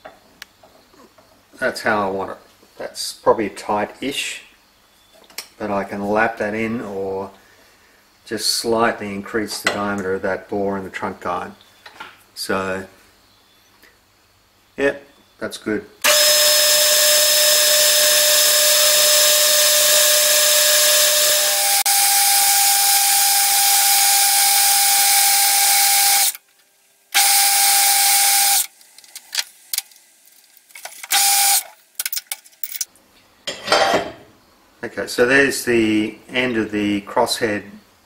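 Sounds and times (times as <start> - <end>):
metal lathe cutting: 16.1 - 26.4.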